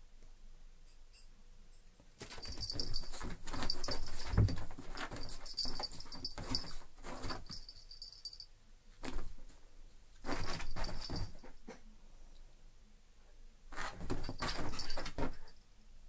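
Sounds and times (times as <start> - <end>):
animals scuffling and thumping: 2.2 - 7.7, 10.2 - 11.6, 13.8 - 15.5
collar jingling: 2.2 - 8.5, 10.3 - 11.5, 14.0 - 15.6.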